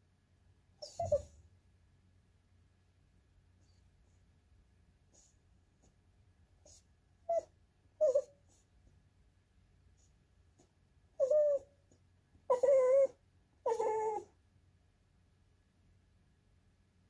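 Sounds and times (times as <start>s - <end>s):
puppy whining: 0.8s - 1.5s, 3.6s - 3.9s, 5.1s - 6.0s, 6.6s - 8.7s, 10.0s - 14.4s.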